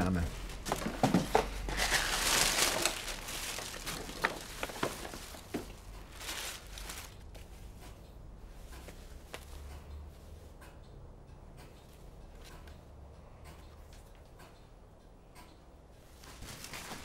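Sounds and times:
tissue paper rustling: 0:00.6 - 0:07.6, 0:16.2 - 0:17.0.

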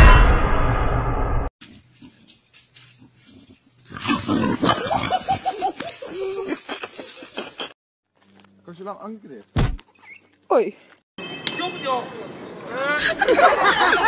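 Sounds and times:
pig grunting and squealing: 0:03.9 - 0:05.3.

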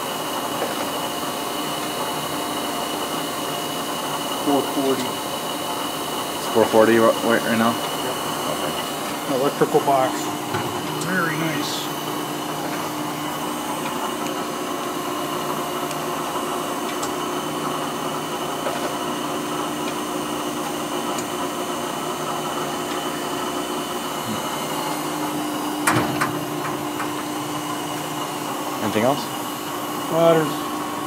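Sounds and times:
grinder motors humming: 0:00.0 - 0:31.0
metal cabinet door clanking shut: 0:25.8 - 0:26.5.

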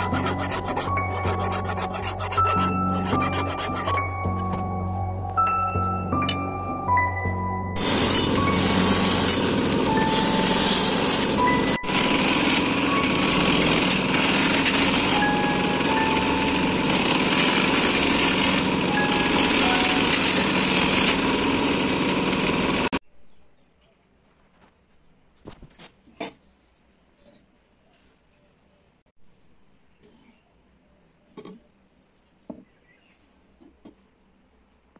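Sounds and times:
axe blade on grinding wheel: 0:00.0 - 0:04.6, 0:07.8 - 0:23.0.

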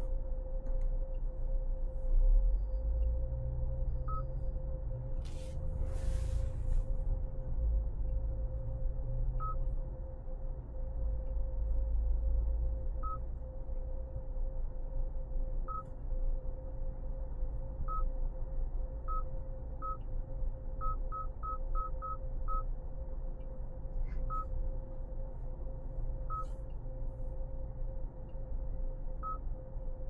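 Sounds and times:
car driving rumble in cabin: 0:00.0 - 0:14.4
steady hum: 0:00.0 - 0:30.0.

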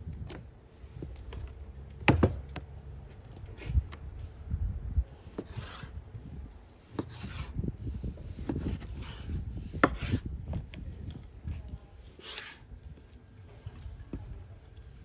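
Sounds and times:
knife cutting on wooden board: 0:05.3 - 0:05.9, 0:06.9 - 0:07.6, 0:08.4 - 0:10.2.

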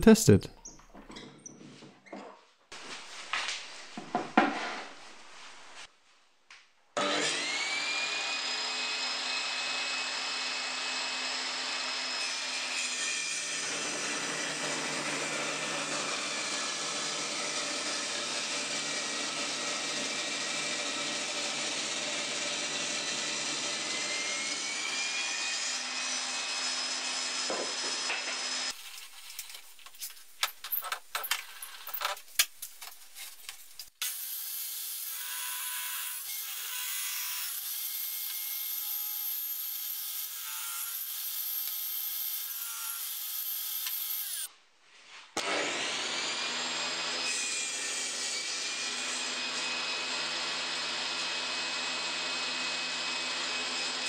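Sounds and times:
wood sliding and knocking: 0:03.8 - 0:05.3
table saw whining: 0:07.0 - 0:29.7, 0:33.4 - 0:44.5, 0:45.4 - 0:54.0.

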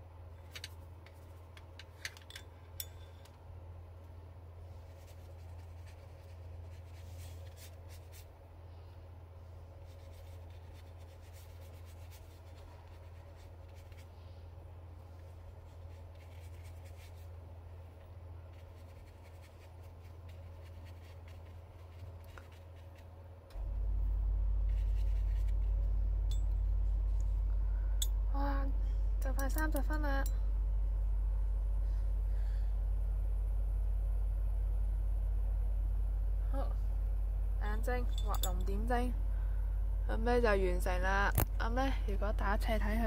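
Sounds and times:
low hum: 0:00.0 - 0:43.0
paintbrush brushing on paper: 0:04.8 - 0:08.3, 0:09.8 - 0:14.2, 0:15.2 - 0:17.4, 0:18.4 - 0:23.1, 0:24.6 - 0:25.7.

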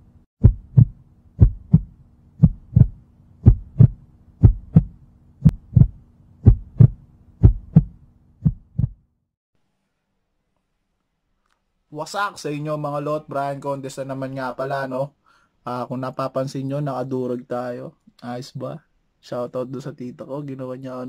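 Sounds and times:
low hum: 0:00.0 - 0:09.0
heartbeat thumps: 0:00.4 - 0:09.0.

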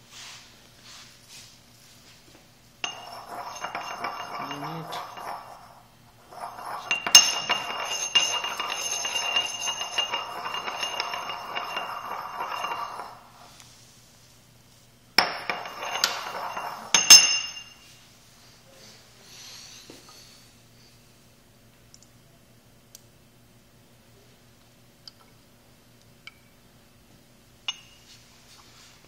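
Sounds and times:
pestle clinking: 0:02.8 - 0:13.5, 0:15.2 - 0:17.8
pestle scraping in a mortar: 0:02.8 - 0:13.6, 0:15.2 - 0:17.1.

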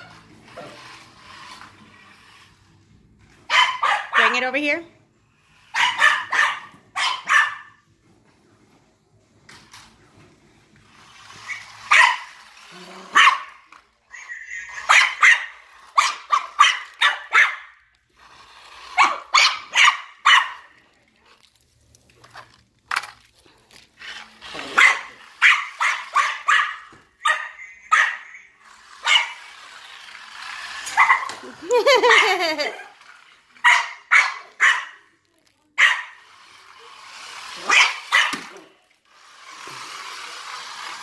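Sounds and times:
dog barking: 0:03.5 - 0:04.4, 0:05.7 - 0:07.8, 0:11.9 - 0:12.3, 0:13.1 - 0:13.6, 0:14.7 - 0:17.7, 0:19.0 - 0:20.7, 0:24.7 - 0:28.4, 0:29.0 - 0:29.4, 0:33.6 - 0:35.0, 0:35.8 - 0:36.2, 0:37.6 - 0:38.5.

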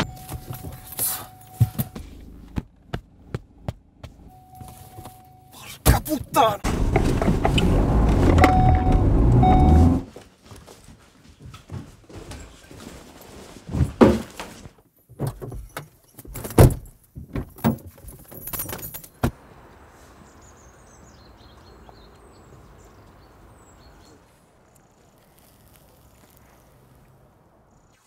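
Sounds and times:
car door shutting: 0:06.6 - 0:10.1.

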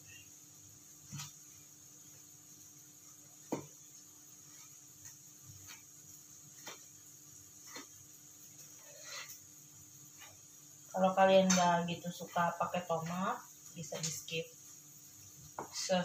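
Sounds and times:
knife tapping on cutting board: 0:03.5 - 0:03.7.

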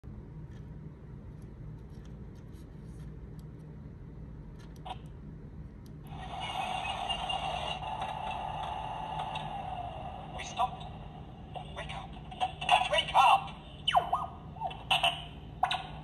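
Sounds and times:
tinny sound effect from small speaker: 0:06.1 - 0:16.0.

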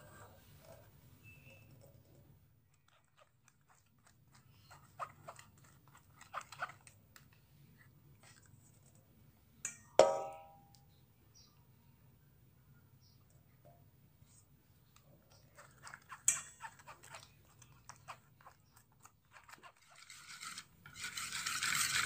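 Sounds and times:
sharp clink with ring: 0:09.7 - 0:10.8
spoon scraping through a sieve: 0:15.3 - 0:22.0.

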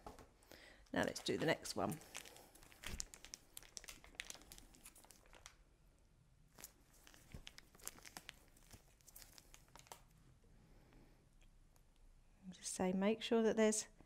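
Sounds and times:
plastic piping bag crinkling: 0:00.9 - 0:05.7, 0:06.5 - 0:10.2.

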